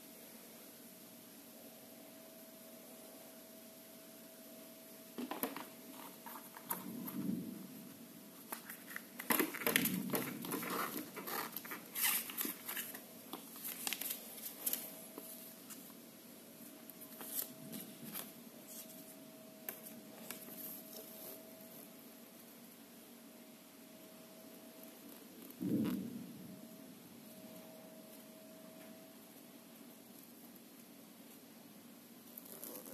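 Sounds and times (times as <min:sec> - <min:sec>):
faint steady hum: 0:00.0 - 0:32.9
cardboard box and paper rustling: 0:08.4 - 0:15.5.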